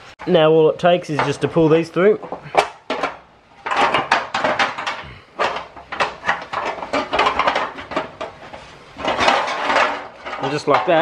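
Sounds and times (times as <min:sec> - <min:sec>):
metal rods clattering on metal: 0:02.2 - 0:11.0.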